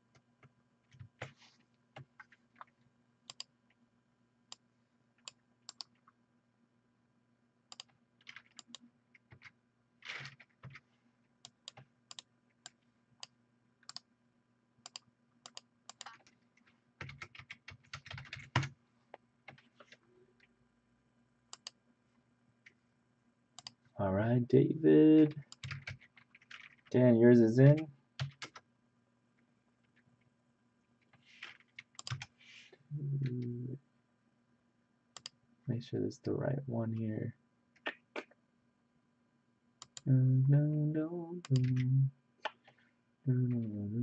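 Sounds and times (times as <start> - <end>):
faint steady hum: 0.0 - 44.0
computer keyboard typing: 7.7 - 10.8, 17.0 - 18.7, 25.5 - 26.9, 27.7 - 28.6, 31.4 - 32.3, 41.4 - 42.7.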